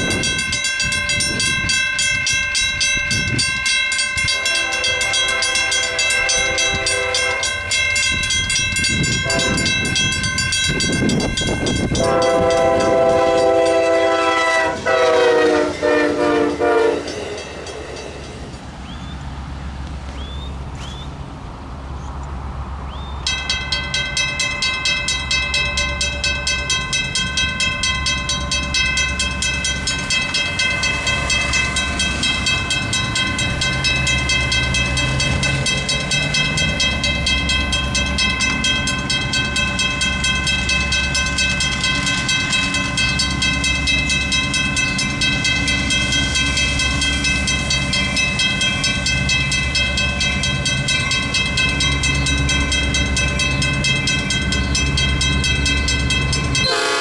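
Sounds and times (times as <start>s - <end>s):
railroad crossing bell ringing: 0.0s - 21.0s, 22.8s - 57.0s
train horn chord: 4.3s - 7.7s, 9.1s - 9.9s, 11.9s - 17.4s, 56.6s - 57.0s.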